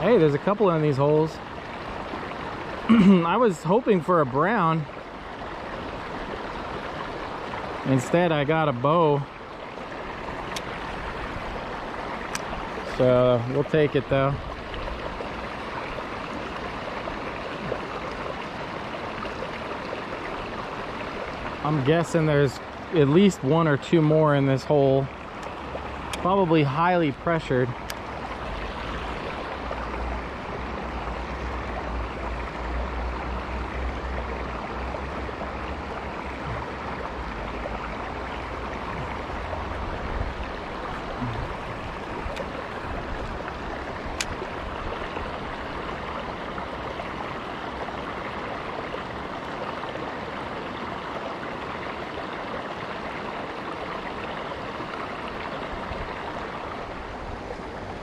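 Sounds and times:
creek flowing over stones: 0:00.0 - 0:58.0.

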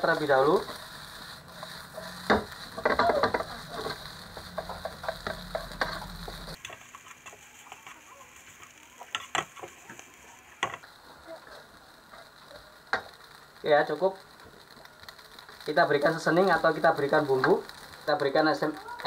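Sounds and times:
spatula scraping a pan: 0:00.0 - 0:10.8
food sizzling: 0:00.0 - 0:19.0.

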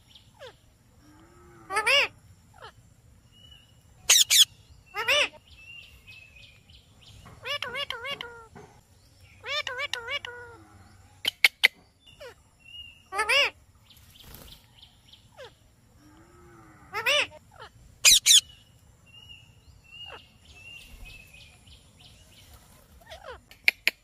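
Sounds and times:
parakeets screeching: 0:00.3 - 0:00.6, 0:01.7 - 0:02.8, 0:04.0 - 0:05.4, 0:07.3 - 0:08.5, 0:09.4 - 0:10.6, 0:13.0 - 0:13.6, 0:15.3 - 0:15.6, 0:16.9 - 0:18.6, 0:20.0 - 0:21.0, 0:22.8 - 0:23.5.

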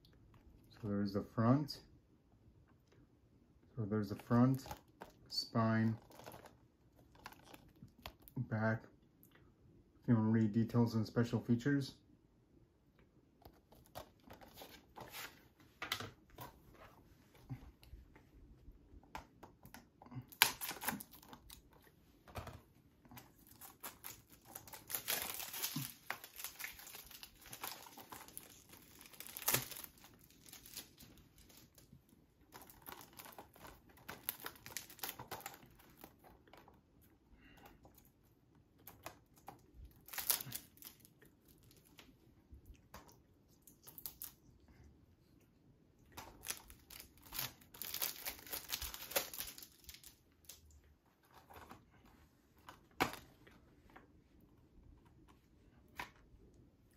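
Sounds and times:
plastic wrap crinkling: 0:04.0 - 0:08.3, 0:23.1 - 0:36.8, 0:38.8 - 0:42.1, 0:46.2 - 0:51.8
plastic wrap tearing: 0:05.8 - 0:08.3, 0:20.2 - 0:21.7, 0:23.3 - 0:31.9, 0:32.5 - 0:36.3, 0:39.9 - 0:41.8, 0:46.2 - 0:50.6.

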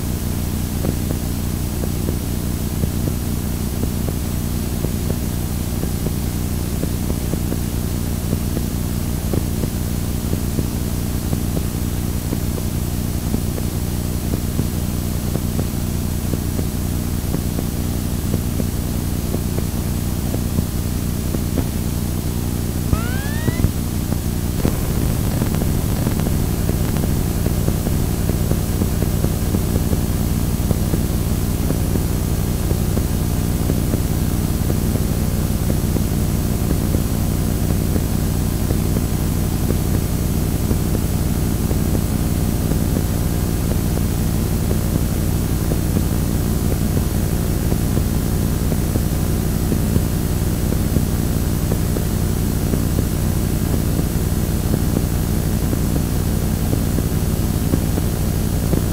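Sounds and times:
tape hiss: 0:22.9 - 0:23.8, 0:24.6 - 0:28.9
tape static rumble: 0:22.9 - 0:23.8, 0:24.6 - 0:29.1.

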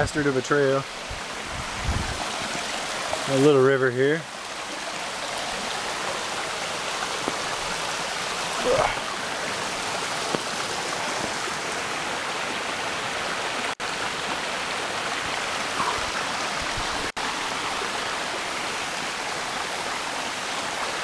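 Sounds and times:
stream rushing over stones: 0:00.0 - 0:21.0.

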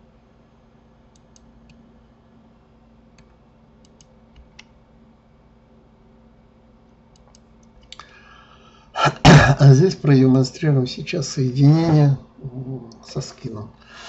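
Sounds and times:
steady low hum: 0:00.0 - 0:14.0
computer mouse clicks: 0:01.1 - 0:01.8, 0:03.2 - 0:04.8, 0:07.1 - 0:08.1
keyboard clicks: 0:03.2 - 0:04.7, 0:07.1 - 0:08.0.

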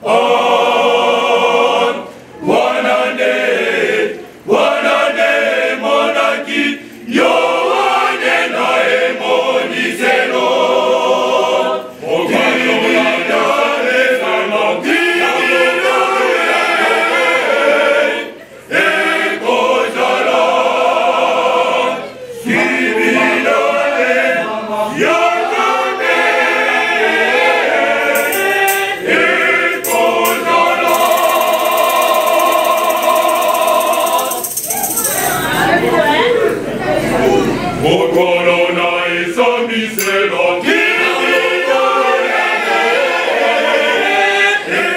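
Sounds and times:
choir singing a hymn: 0:00.0 - 0:34.6, 0:35.4 - 0:44.9
shaker rattling: 0:28.1 - 0:29.2, 0:29.8 - 0:35.8.

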